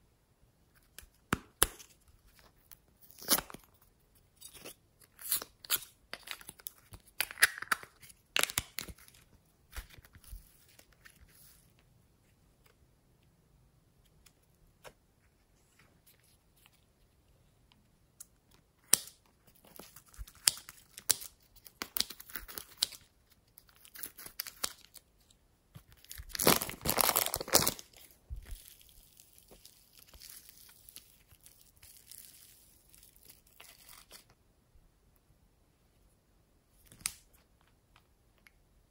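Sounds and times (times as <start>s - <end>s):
plastic tearing: 25.9s - 34.3s
plastic packet crinkling: 26.0s - 34.3s.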